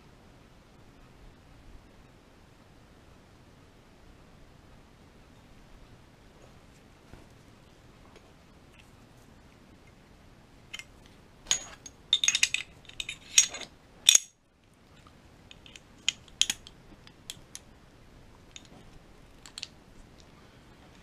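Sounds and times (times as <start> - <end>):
pistol parts clicking and rattling: 10.7 - 14.4, 15.5 - 17.7, 18.5 - 19.8.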